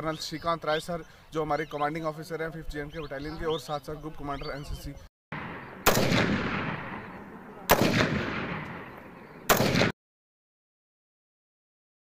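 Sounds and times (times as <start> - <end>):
long echo of gunshots: 5.3 - 10.0
rifle shots: 5.4 - 10.0.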